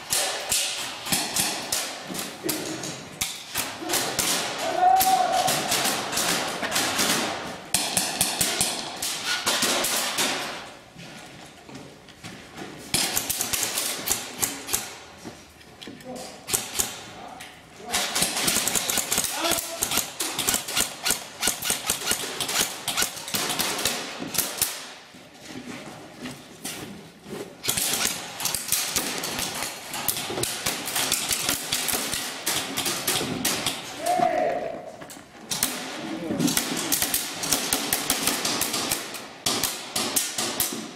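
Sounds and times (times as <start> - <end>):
airsoft gunfire: 0.0 - 2.1, 3.2 - 10.6, 17.9 - 24.9, 27.6 - 33.9, 36.6 - 40.9.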